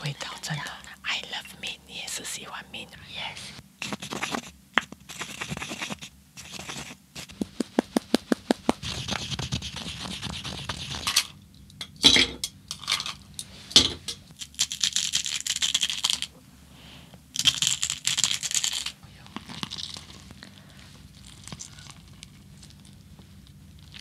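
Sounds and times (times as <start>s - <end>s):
sugar shaken out: 14.4s - 16.3s, 17.4s - 19.0s.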